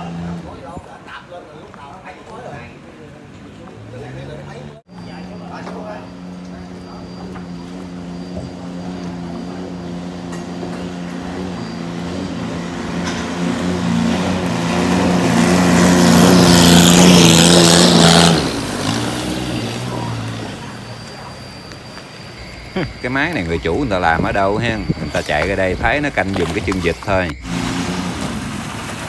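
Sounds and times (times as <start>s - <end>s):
speedboat engine racing past: 7.6s - 21.6s, 27.4s - 29.0s
rush of boat spray: 27.4s - 29.0s.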